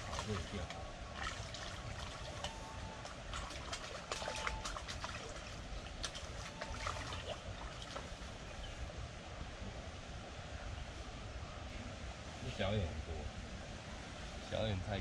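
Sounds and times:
small clicks and splashes: 0.0 - 8.2
river water trickling and lapping: 0.0 - 15.0.

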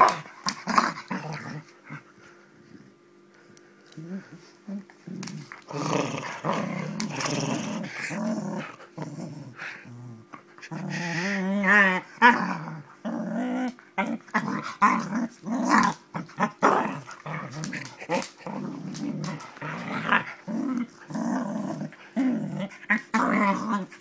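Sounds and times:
dog growling in play: 0.0 - 2.1, 4.0 - 24.0.

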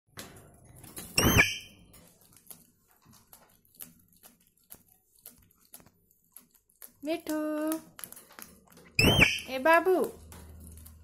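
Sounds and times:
parakeet squawk: 1.2 - 1.7, 9.0 - 9.5
faint clicks and taps: 1.9 - 9.0.

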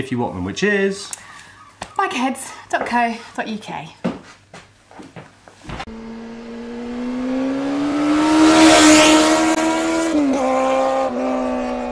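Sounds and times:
vehicle engine passing by: 5.8 - 11.9.

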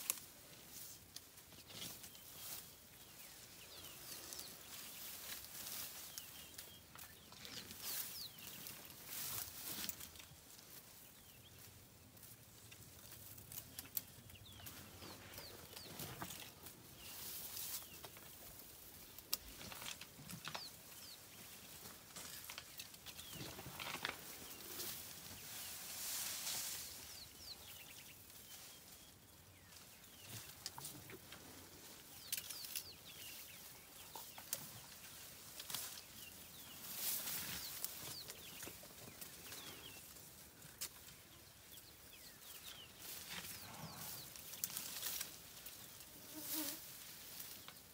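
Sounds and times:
leaves and branches rustling: 0.0 - 47.9
birds chirping: 0.1 - 47.9
branches cracking: 19.1 - 21.0, 22.0 - 26.8, 32.2 - 33.1, 43.0 - 45.8.

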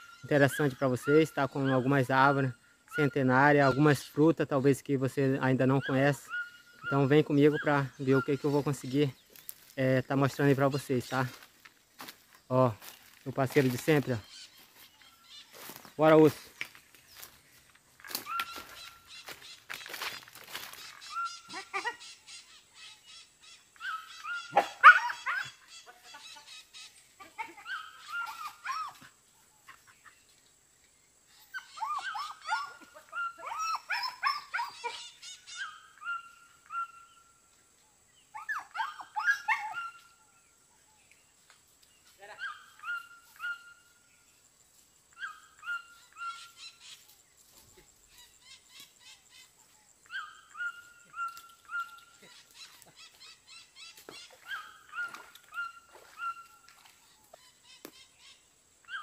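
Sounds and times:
dog yelping and whining: 23.8 - 25.6, 27.4 - 29.1, 31.5 - 37.0, 38.4 - 40.0, 42.4 - 43.8, 45.2 - 46.4, 50.1 - 52.3, 54.4 - 56.5.

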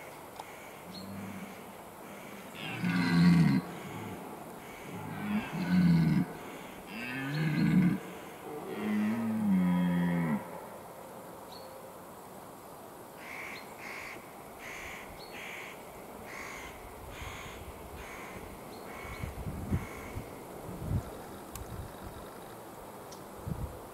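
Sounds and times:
deer stag roaring: 2.6 - 4.2, 4.9 - 10.5.

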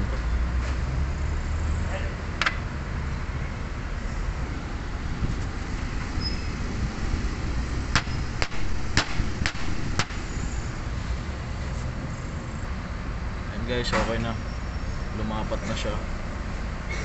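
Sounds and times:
steady background hum: 1.9 - 17.0
sharp hammer strikes: 7.9 - 10.2.

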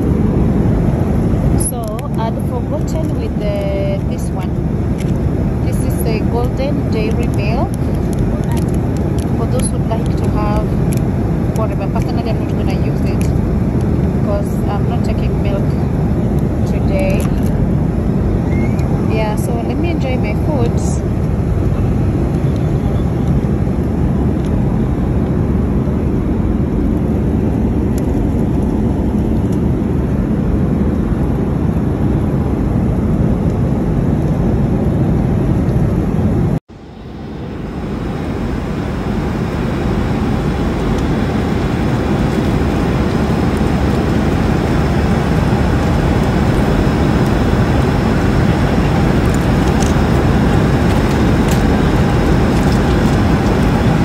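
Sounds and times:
airliner engines and airflow roar: 0.0 - 54.0.

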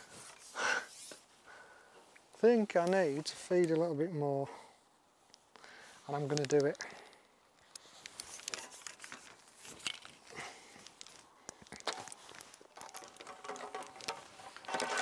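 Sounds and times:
hands squeezing damp bait: 6.2 - 15.0.

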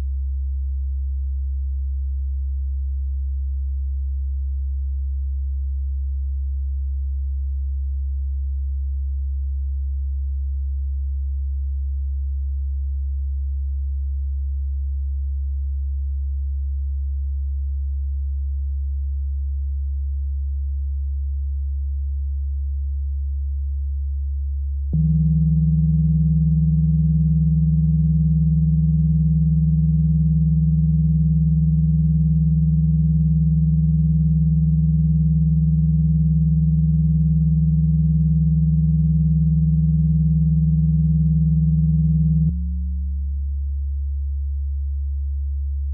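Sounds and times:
very low steady sine tone: 0.0 - 45.9
higher steady sine tone: 24.9 - 45.1.

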